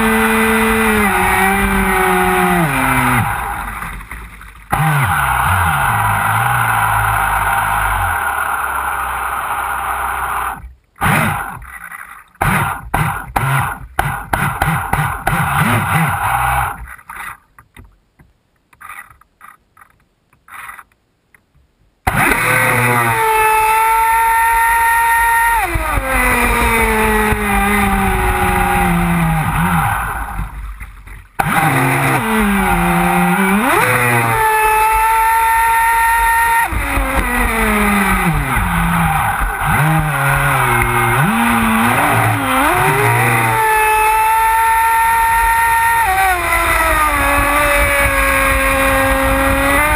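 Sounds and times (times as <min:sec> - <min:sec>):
electric motor whining: 0:00.0 - 0:11.6, 0:22.1 - 0:30.8, 0:31.4 - 0:49.9.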